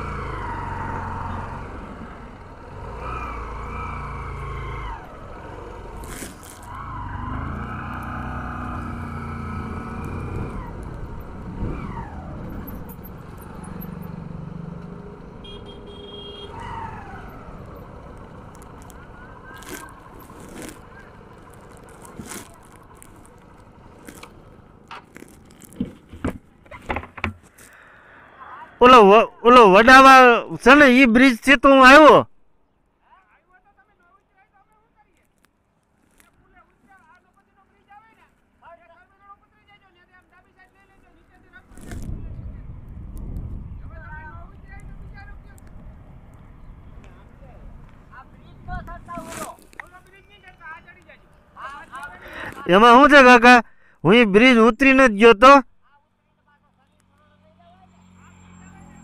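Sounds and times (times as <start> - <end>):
motorcycle engine revving: 0.0 - 26.0
sharp knocks: 25.8 - 27.5
wind rushing over microphone: 41.8 - 49.1.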